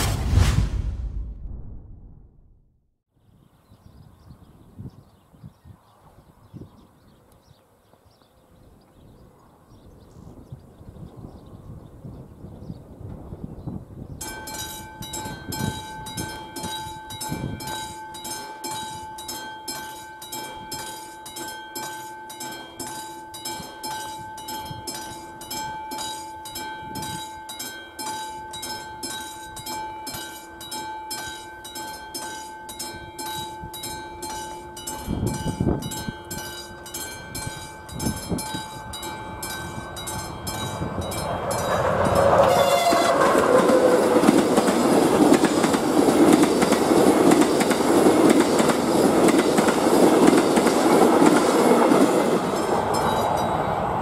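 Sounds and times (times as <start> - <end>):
level crossing warning bell ringing: 14.2 - 45.7, 46.6 - 54.0
passenger train approaching: 14.2 - 54.0.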